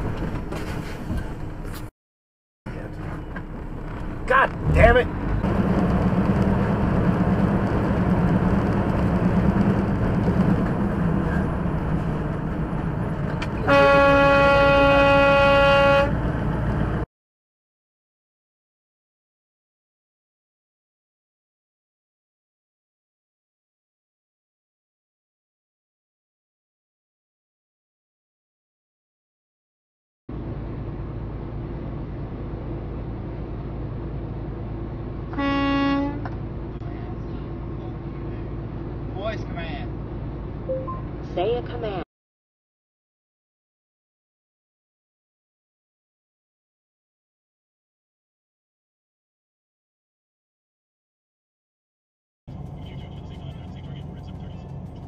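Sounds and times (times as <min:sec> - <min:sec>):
truck engine and tyre drone: 0:00.0 - 0:01.9, 0:02.7 - 0:17.1, 0:30.3 - 0:42.0, 0:52.5 - 0:55.0
truck horn blast: 0:13.6 - 0:16.2, 0:35.3 - 0:36.3.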